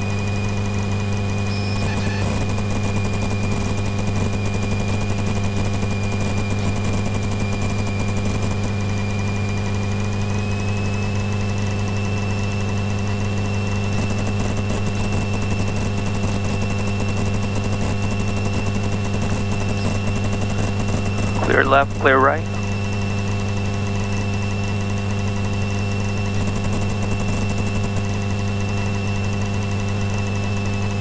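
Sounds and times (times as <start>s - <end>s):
faint high whine: 19.5s - 22.6s.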